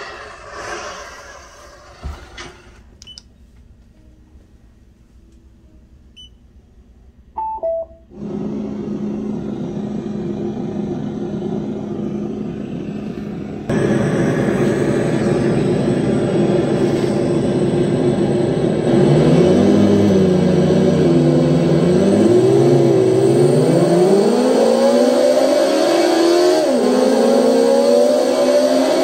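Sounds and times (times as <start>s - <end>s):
short beeps: 7.4s - 8.1s
synthetic motor drone: 8.2s - 29.0s.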